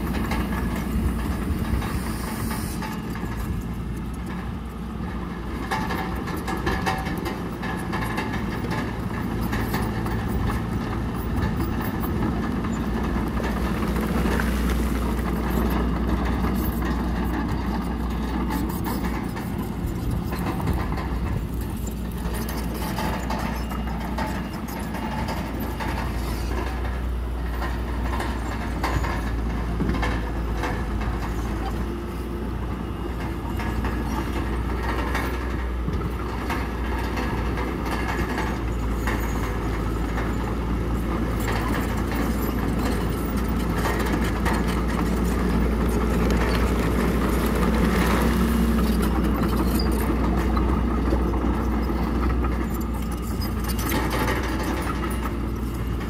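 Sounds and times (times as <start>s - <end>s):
bulldozer diesel engine running: 0.0s - 56.0s
steel tracks clanking: 0.0s - 56.0s.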